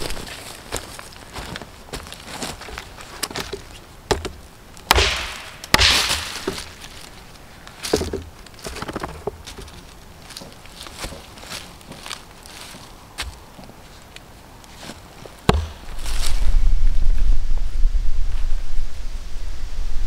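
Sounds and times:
hatchet chopping wood: 0:04.1 - 0:06.7, 0:15.5 - 0:15.9.

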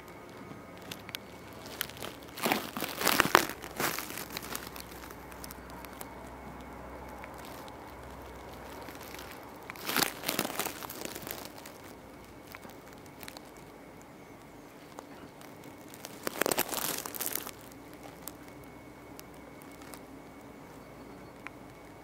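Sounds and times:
faint steady hiss: 0:00.0 - 0:22.0
rustling through grass and leaves: 0:00.2 - 0:22.0.

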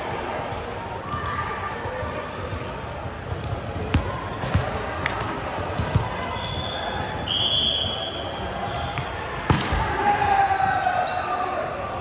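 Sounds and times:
basketball bouncing on court: 0:03.1 - 0:06.2.

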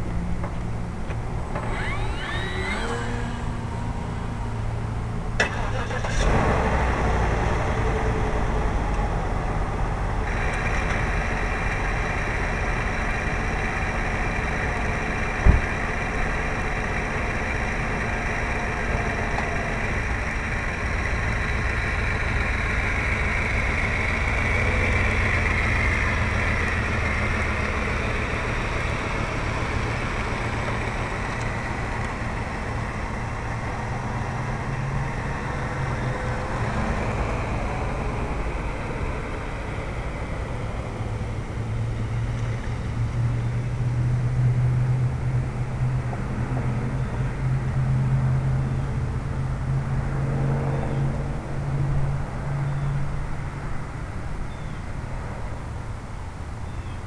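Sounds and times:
model airplane motor and propeller: 0:01.1 - 0:04.8, 0:10.2 - 0:43.8.

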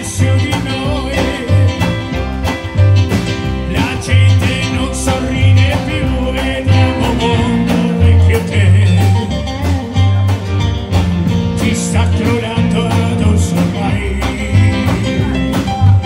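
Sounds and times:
man singing: 0:00.0 - 0:02.6, 0:03.4 - 0:10.2, 0:11.4 - 0:16.0
drum beat: 0:00.0 - 0:16.0
live band playing: 0:00.0 - 0:16.0
low bass notes: 0:00.0 - 0:16.0.

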